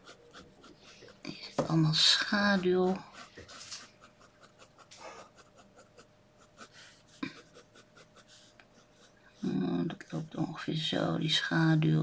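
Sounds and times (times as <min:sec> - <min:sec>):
pen scratching on paper: 0:00.0 - 0:09.2.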